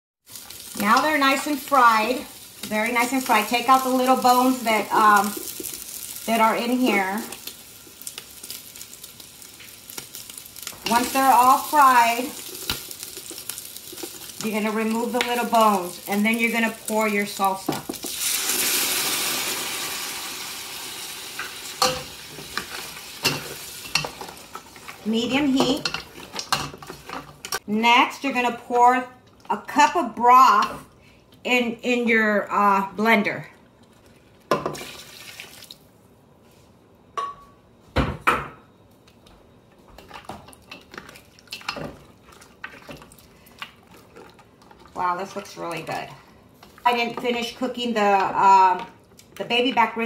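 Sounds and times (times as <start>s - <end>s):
sauce sizzling in hot oil: 0.2s - 27.6s
sauce pouring and splashing into pot: 7.4s - 14.5s, 18.0s - 23.8s, 34.8s - 35.8s
spatula stirring against a pot: 21.8s - 27.6s, 40.0s - 47.3s.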